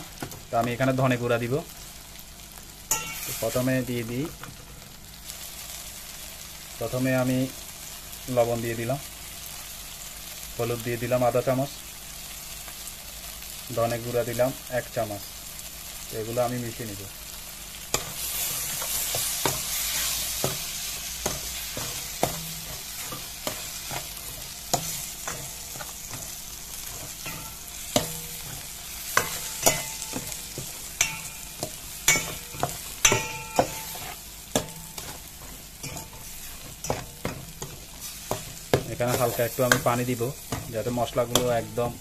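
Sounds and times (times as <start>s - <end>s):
food sizzling in oil: 0.0s - 42.0s
metal spoon clinking against pot: 2.9s - 3.3s, 27.0s - 28.6s, 29.2s - 34.0s.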